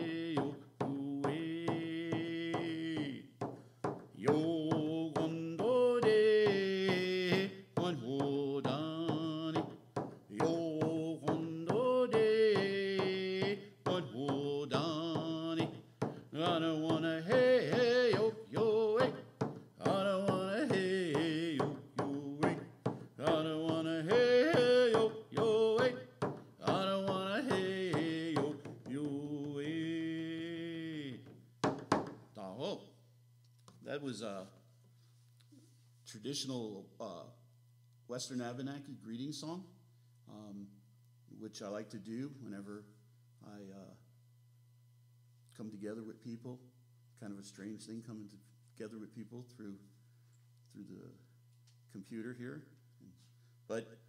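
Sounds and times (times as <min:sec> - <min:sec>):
frame drum beat: 0:00.0 - 0:30.1
man singing: 0:00.0 - 0:31.4.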